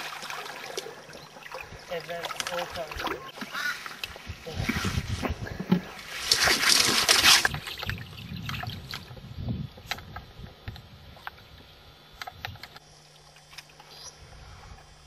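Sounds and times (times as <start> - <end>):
fish thrashing and splashing: 6.0 - 9.1.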